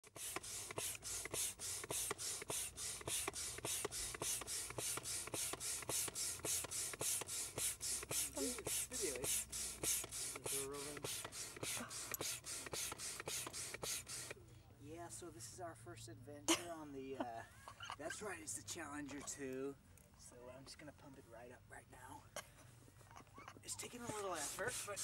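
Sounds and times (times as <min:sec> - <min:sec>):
hand air pump hissing: 0:00.0 - 0:14.4, 0:23.6 - 0:25.0.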